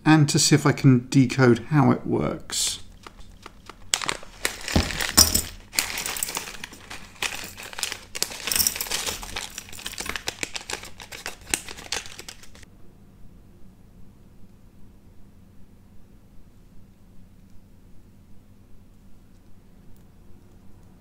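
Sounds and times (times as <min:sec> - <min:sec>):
plastic bag crinkling: 0:02.8 - 0:12.6
small parts clicking: 0:02.9 - 0:12.6.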